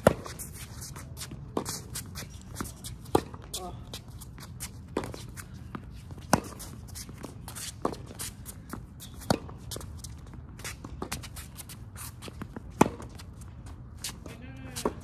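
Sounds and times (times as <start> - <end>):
tennis ball hit by rackets: 0.0 - 0.3, 6.2 - 8.3, 9.2 - 9.6, 12.4 - 13.2
footsteps and shoe scuffs on court: 0.0 - 15.0.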